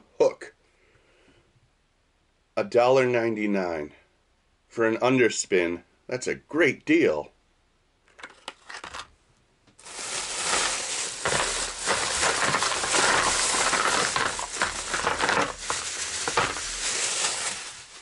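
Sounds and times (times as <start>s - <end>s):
plastic bag crinkling and rustling: 9.8s - 18.0s.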